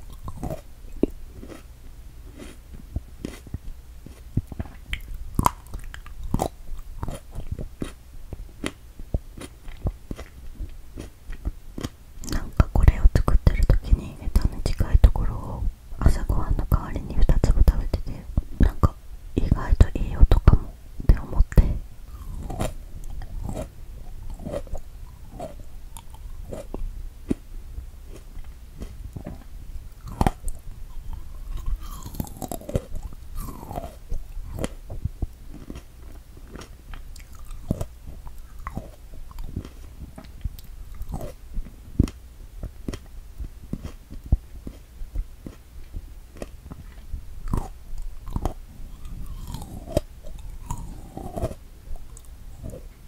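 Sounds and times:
chewing mouth clicks and smacks: 3.2s - 8.0s, 25.4s - 27.4s, 28.1s - 41.4s.

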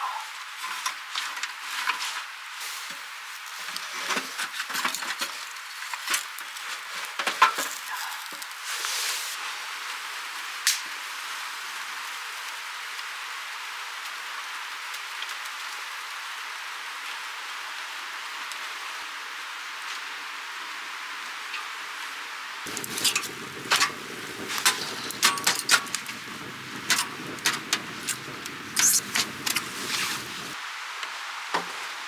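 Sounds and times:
firewood knocking in metal stove: 22.7s - 30.4s
steady soft hiss: 22.7s - 32.0s.

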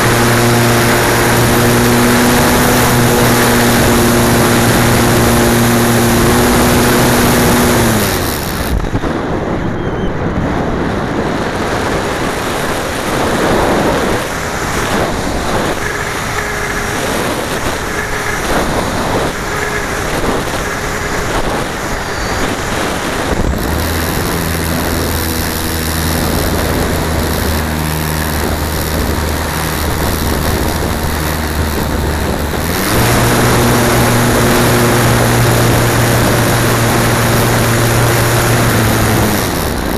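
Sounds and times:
model plane motor humming: 0.0s - 39.9s.

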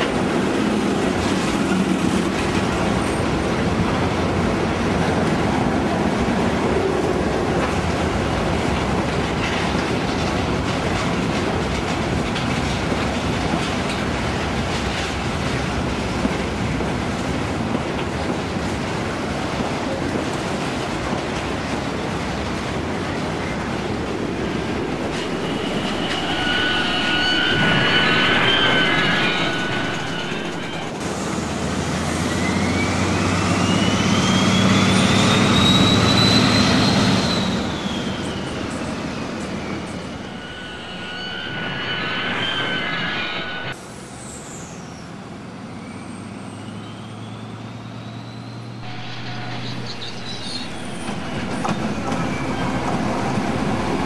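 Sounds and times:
steady whining tone: 23.2s - 31.0s, 37.4s - 43.8s, 48.8s - 54.0s
whine rising and falling in pitch: 23.4s - 31.0s, 37.4s - 43.8s.

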